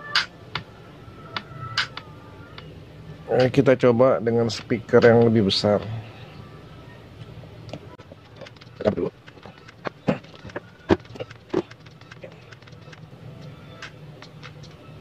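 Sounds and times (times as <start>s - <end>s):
handling clicks and knocks: 8.0s - 13.0s.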